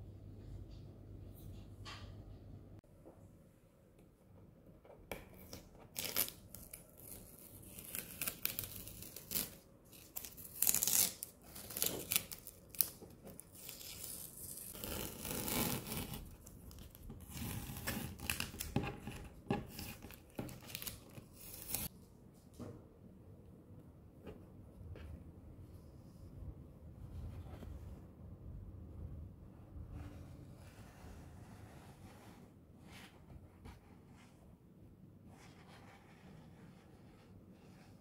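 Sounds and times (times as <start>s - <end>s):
masking tape peeling off paper: 5.9s - 18.7s.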